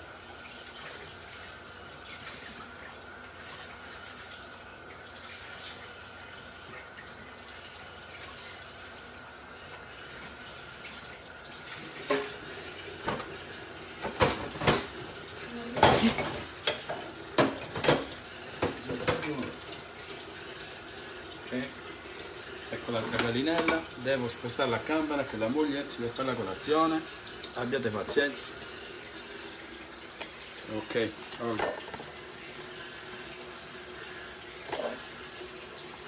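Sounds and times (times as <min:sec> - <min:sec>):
tap running: 0:11.8 - 0:20.7, 0:22.1 - 0:24.0, 0:27.1 - 0:33.7
dishes and utensils clinking: 0:12.0 - 0:12.4, 0:15.8 - 0:19.6, 0:31.2 - 0:32.1.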